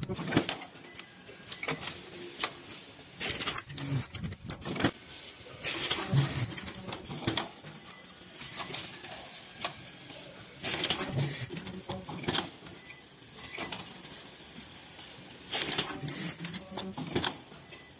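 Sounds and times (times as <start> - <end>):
machine clicks and knocks: 10.6 - 12.6, 16.8 - 17.4.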